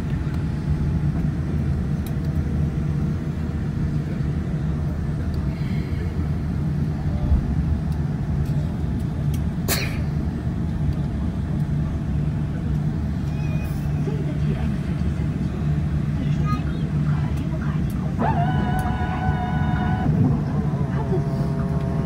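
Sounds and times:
jet engines idling rumble: 0.0 - 22.0.

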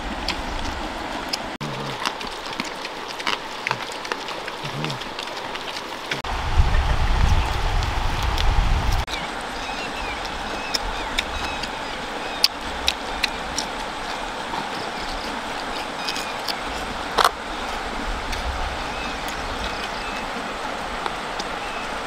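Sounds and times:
person chewing food: 0.0 - 6.2, 8.2 - 20.4
river flowing over stones: 0.0 - 6.6, 9.0 - 22.0.

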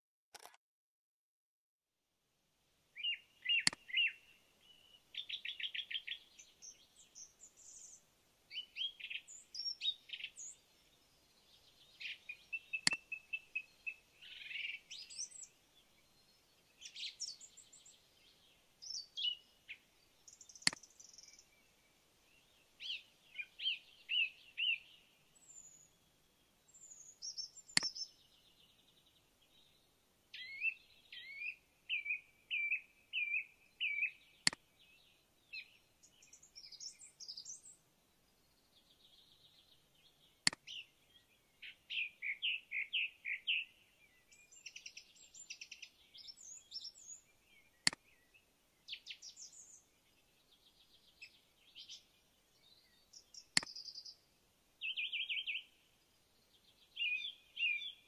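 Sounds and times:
sharp clicks: 0.3 - 0.6, 3.6 - 3.8, 20.6 - 20.9, 40.5 - 40.7, 47.8 - 48.0
birds chirping and singing: 3.0 - 58.0.

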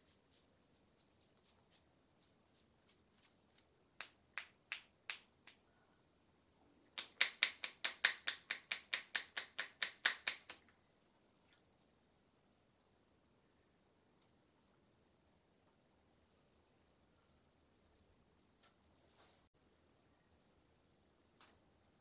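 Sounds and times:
palms clapping in massage strokes: 1.0 - 5.6, 7.0 - 10.7.

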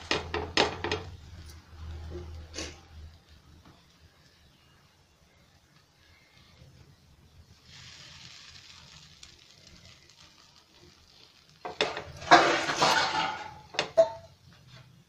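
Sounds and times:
food scraping on a pan: 0.0 - 2.9, 7.6 - 15.0
sandwiches hissing on a pan: 0.0 - 15.0.

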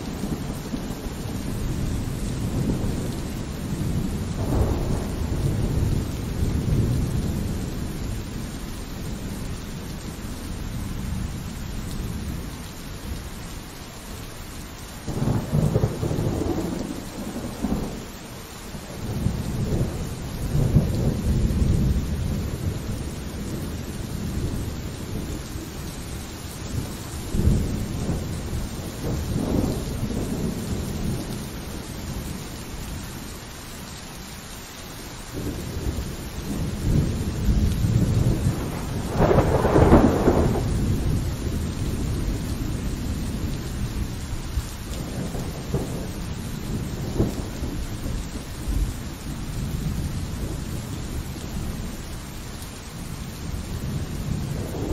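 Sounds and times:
rolling thunder: 0.0 - 8.5, 15.0 - 26.0, 26.7 - 32.4, 35.4 - 51.9, 53.2 - 54.9
steady rain: 0.0 - 54.9.

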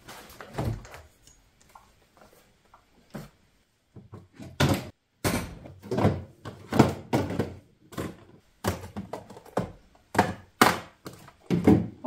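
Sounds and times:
groceries thunking on shelves: 4.0 - 12.0.

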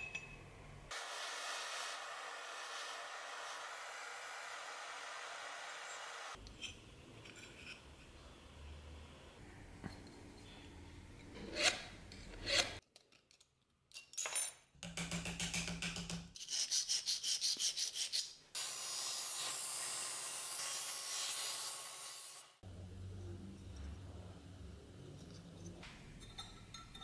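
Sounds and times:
steady rasping hiss: 0.9 - 6.4.

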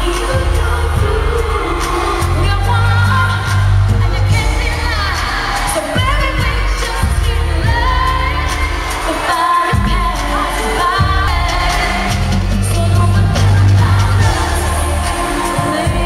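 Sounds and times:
band playing r and b backing: 0.0 - 16.0
woman singing into a microphone: 0.0 - 16.0.

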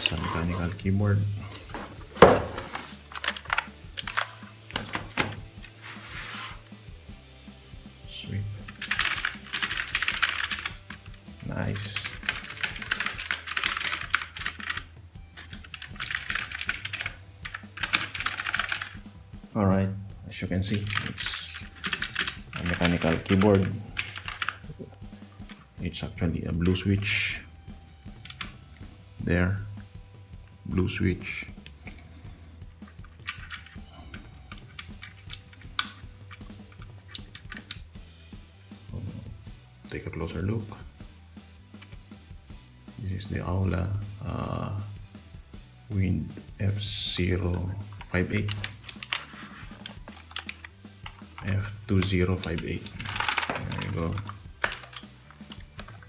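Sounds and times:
mechanical keyboard typing: 8.8 - 10.8, 11.9 - 19.0, 21.8 - 24.6.

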